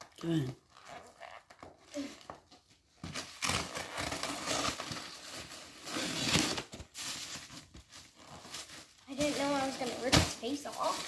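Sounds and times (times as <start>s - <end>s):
wrapping paper tearing: 3.2s - 11.0s.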